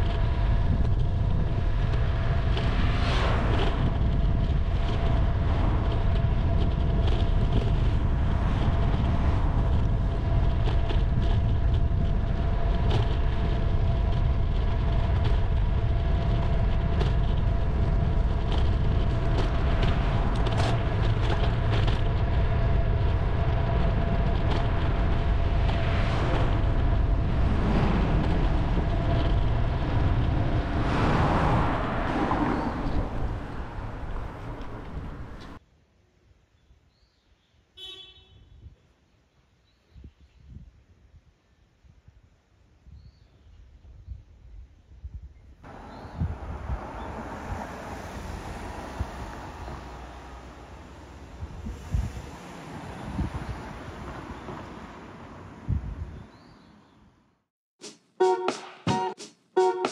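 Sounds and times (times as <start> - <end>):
traffic noise: 0.0 - 35.6, 45.6 - 57.4
bicycle road rumble: 0.0 - 35.7, 37.8 - 57.5
wind: 0.0 - 59.9.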